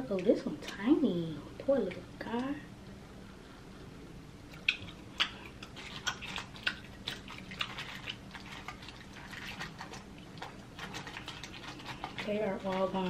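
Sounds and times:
crawfish shells clicking: 0:04.5 - 0:13.0.

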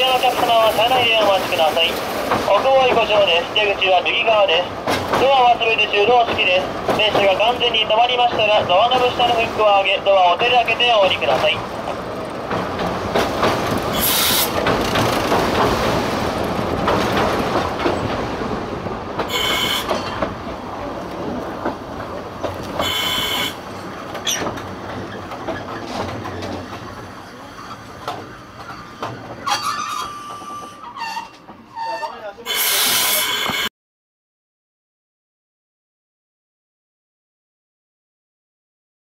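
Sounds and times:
train wheel and rail noise: 0:00.0 - 0:33.7
high wheel squeals: 0:13.9 - 0:14.6, 0:19.3 - 0:20.2, 0:22.8 - 0:23.6, 0:28.6 - 0:33.7.

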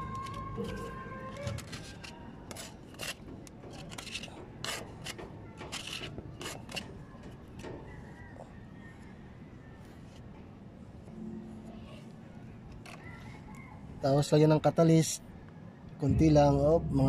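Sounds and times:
putty knife scraping paint can: 0:01.4 - 0:07.0.

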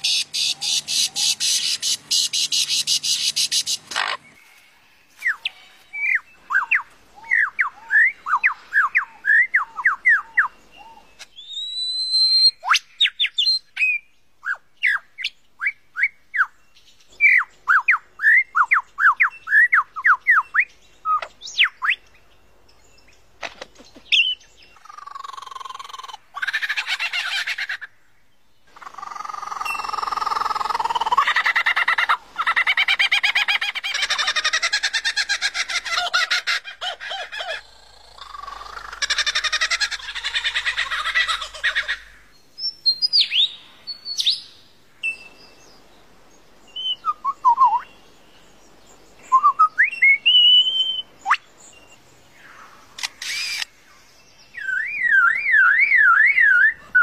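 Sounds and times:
harsh bird calls: 0:00.0 - 0:15.2, 0:23.4 - 0:28.0, 0:28.7 - 0:45.4, 0:49.2 - 0:57.0.

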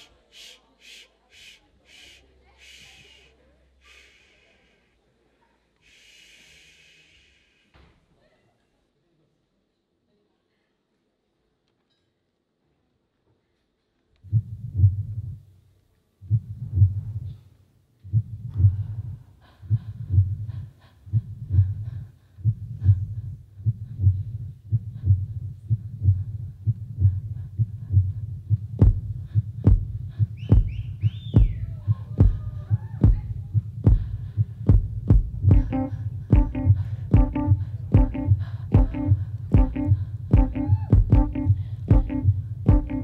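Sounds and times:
deep bass pulse: 0:33.0 - 0:43.0
electronic dance music: 0:35.5 - 0:43.0.

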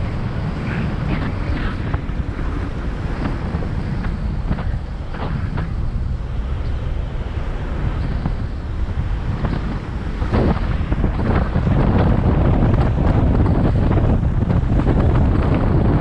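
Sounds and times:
car engine and road rumble: 0:00.0 - 0:16.0
wind buffeting microphone: 0:00.0 - 0:16.0.

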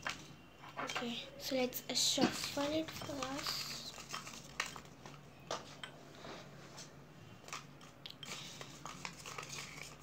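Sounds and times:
paper rustling and crinkling: 0:02.2 - 0:05.2, 0:07.4 - 0:10.0.

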